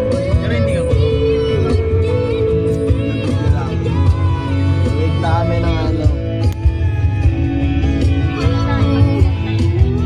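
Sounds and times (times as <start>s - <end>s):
person singing: 0.0s - 6.0s
guitar accompaniment: 0.0s - 10.0s.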